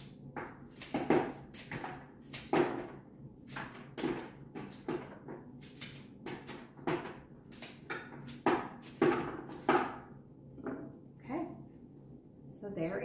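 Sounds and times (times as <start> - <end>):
flower stems cut on wooden board: 0.0 - 10.0.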